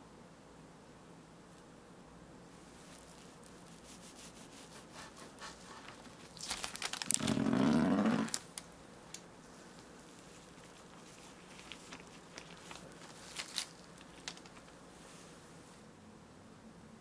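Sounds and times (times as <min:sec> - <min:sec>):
faint crackles: 0:05.6 - 0:15.4.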